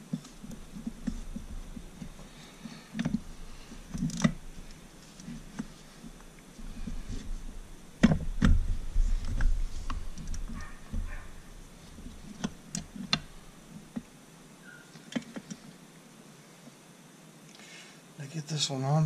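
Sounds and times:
handling thumps: 0.0s - 14.2s.

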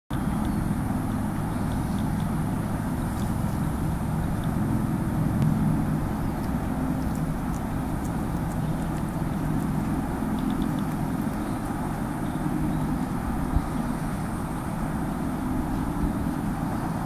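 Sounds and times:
distant motor traffic rumble: 0.1s - 17.0s
wavering engine drone: 0.1s - 17.0s
faint high ticks: 6.4s - 11.6s.

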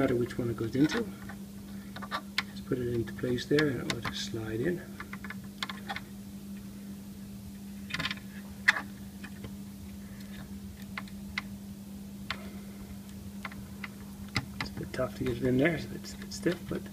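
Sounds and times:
steady low hum: 0.0s - 16.9s
fingers clicking and scraping connector: 0.8s - 4.2s.

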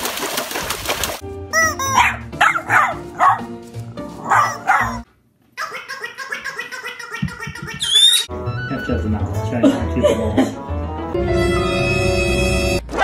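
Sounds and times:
background music: 1.2s - 5.1s, 7.2s - 13.0s
dog barking: 2.0s - 3.5s, 4.2s - 5.0s.

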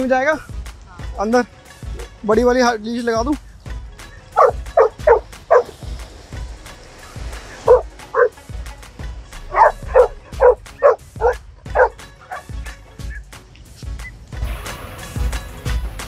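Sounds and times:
dog barking: 4.4s - 5.8s, 7.6s - 8.4s, 9.5s - 12.5s.

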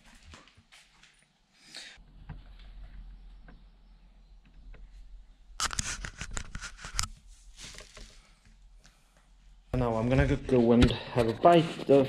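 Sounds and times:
plastic sheet rustling and crinkling: 5.6s - 8.4s.

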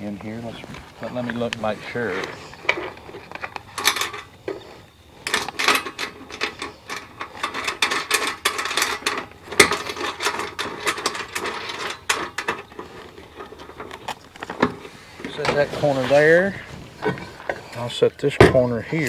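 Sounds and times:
metal bolts clinking: 2.2s - 15.6s.

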